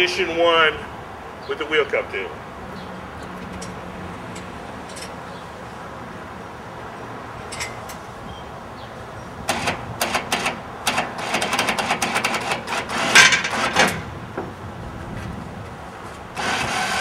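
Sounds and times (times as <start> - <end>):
metal lock pin clicking and clanking: 3.2 - 5.2, 7.4 - 8.0.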